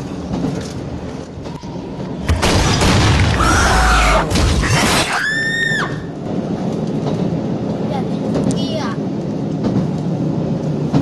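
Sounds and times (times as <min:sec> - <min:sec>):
train running: 0:00.0 - 0:02.4, 0:05.8 - 0:11.0
deep boom with shattering: 0:02.3 - 0:05.0.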